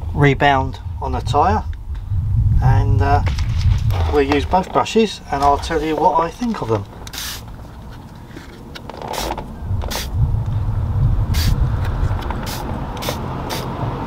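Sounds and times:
low rumble: 0.0 - 14.0
trigger spray bottle squirting: 7.1 - 7.5, 9.1 - 10.1, 11.4 - 13.7.

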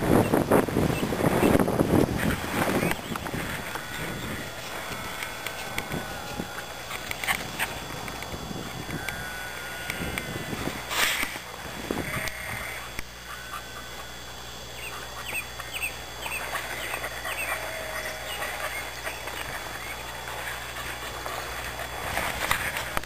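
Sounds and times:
steady outdoor hiss: 0.0 - 23.0
small birds singing and chirping: 0.2 - 9.3, 14.7 - 21.4.

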